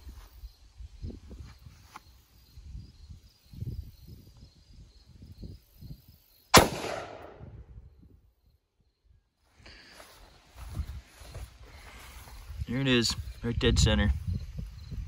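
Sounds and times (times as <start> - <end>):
rifle shot: 6.5 - 7.6.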